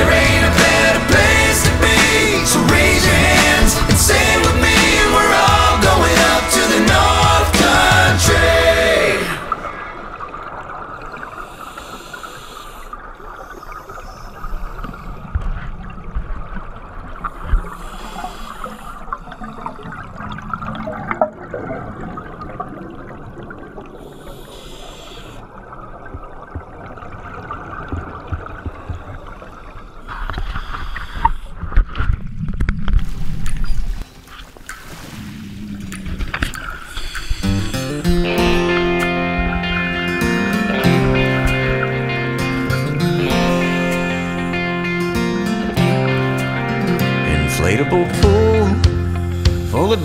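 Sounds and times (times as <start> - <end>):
underwater breath bubbling: 0.0 - 16.0, 17.1 - 26.0, 26.6 - 31.8, 34.8 - 46.1.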